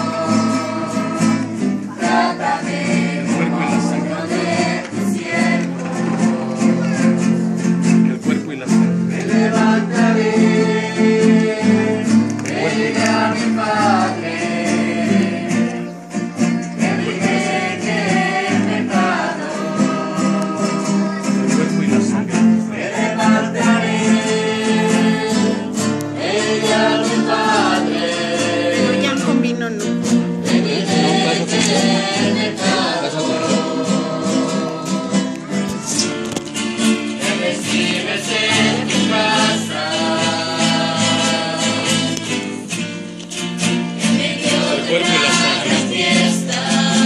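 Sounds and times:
singing over guitar with beat: 0.0 - 47.0.

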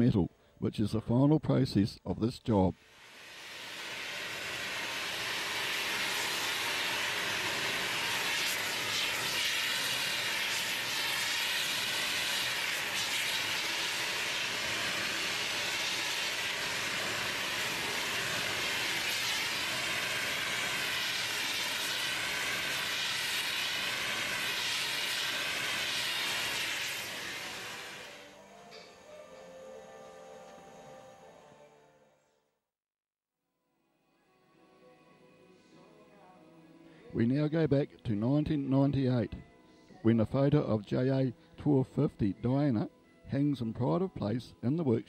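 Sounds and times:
gas torch hissing: 2.8 - 28.9.

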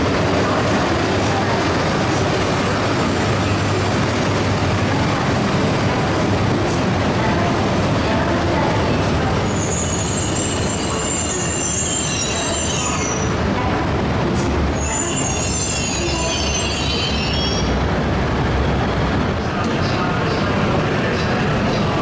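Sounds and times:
low rumble of moving train: 0.0 - 22.0
train wheels squealing: 9.4 - 13.4, 14.7 - 17.8.

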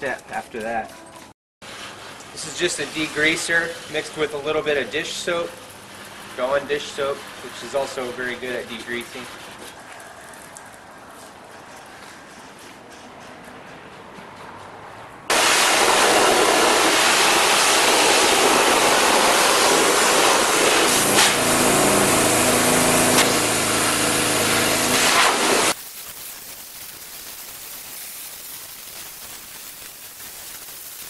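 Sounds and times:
pressure washer jet hissing: 2.4 - 9.3, 15.3 - 31.0.

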